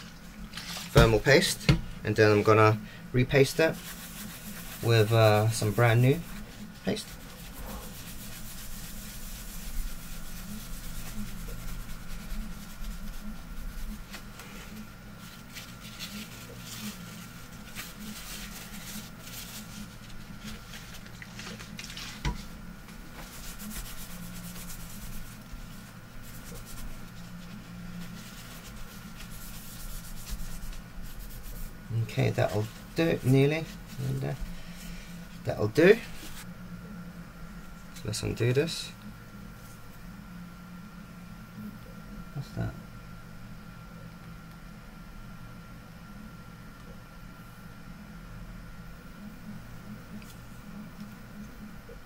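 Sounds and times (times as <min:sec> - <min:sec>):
tissue scrubbing metal plate: 0:03.3 - 0:36.5.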